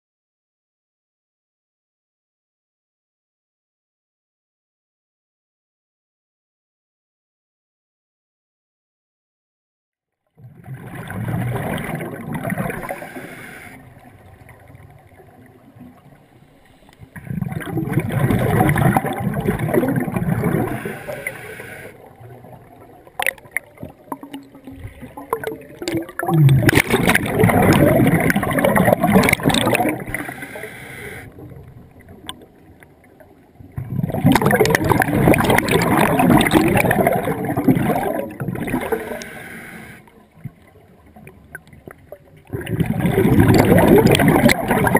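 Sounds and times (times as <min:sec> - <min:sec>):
underwater exhaled bubbles gurgling: 0:10.4 - 0:44.9.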